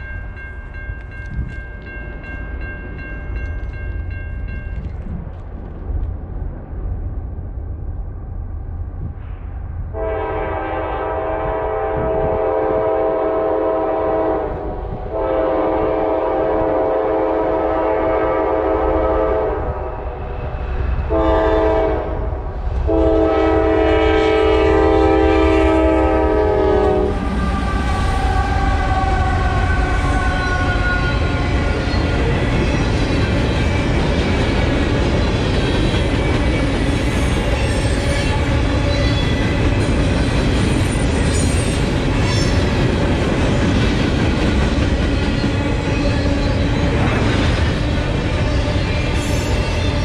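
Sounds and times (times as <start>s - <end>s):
train rumble: 0.0s - 50.0s
train air horn: 9.9s - 20.3s, 21.1s - 32.1s.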